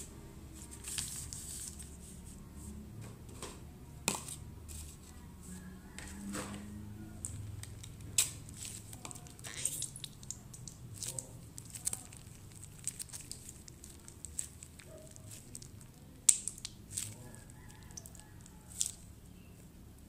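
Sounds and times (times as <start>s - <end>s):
plastic pouch crinkling: 7.6s - 19.1s.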